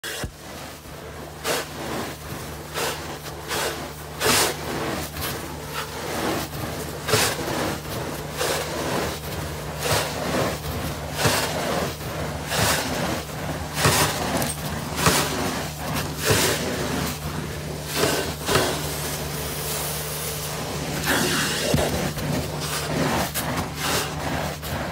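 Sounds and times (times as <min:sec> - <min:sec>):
cleaning machine humming: 0:00.0 - 0:24.9
suction hiss and scraping on carpet: 0:00.0 - 0:24.9.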